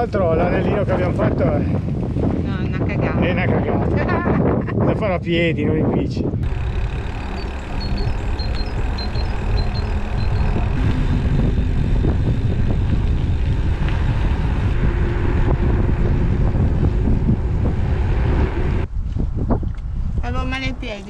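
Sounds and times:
wind rushing over microphone: 0.0 - 21.0
faint steady hum: 6.4 - 18.9.

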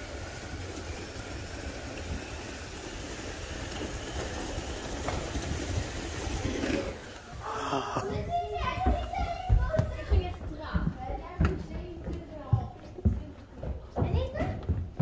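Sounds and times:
riders sliding down wooden slide: 3.5 - 7.5.

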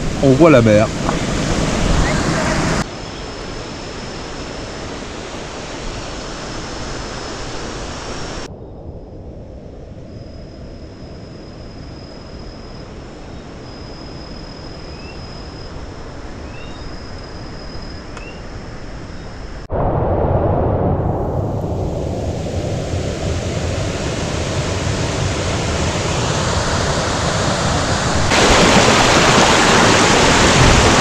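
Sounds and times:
waterfall rushing: 4.2 - 8.5, 22.7 - 31.0.

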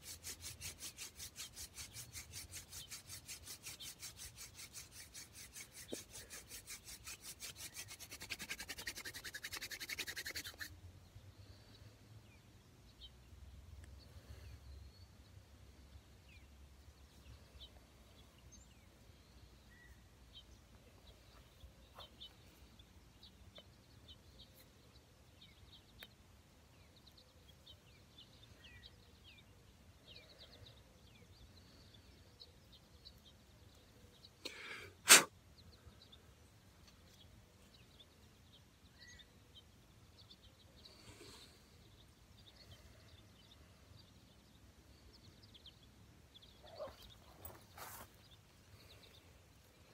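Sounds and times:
man sneezing: 35.0 - 35.3
high bird chirps: 45.1 - 49.2.

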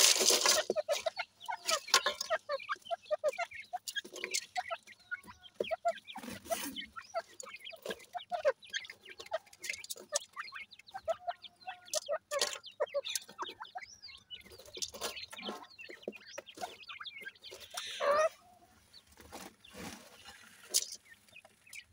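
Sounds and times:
scratching in gravel: 0.0 - 2.4
bird chicks chirping: 0.0 - 21.9.

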